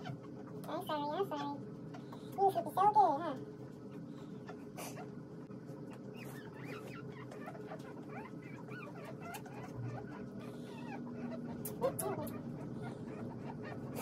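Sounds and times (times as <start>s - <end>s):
puppies squeaking and whimpering: 0.0s - 2.3s, 3.9s - 5.2s, 5.9s - 14.0s
puppy yelp: 6.1s - 14.0s.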